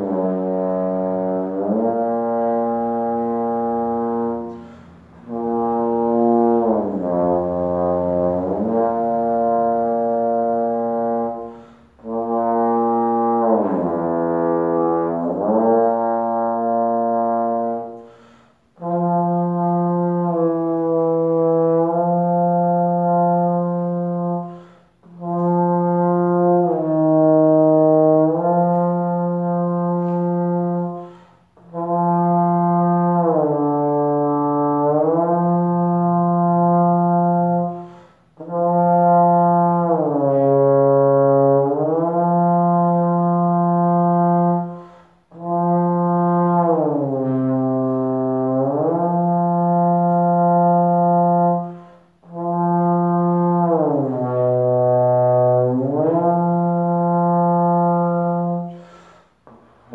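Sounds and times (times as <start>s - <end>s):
trombone playing held bending notes: 0.0s - 59.2s
player breathing: 4.5s - 5.2s, 11.5s - 12.0s, 18.0s - 18.8s, 24.5s - 25.0s, 31.0s - 31.6s, 37.8s - 38.4s, 44.7s - 45.3s, 58.7s - 59.5s.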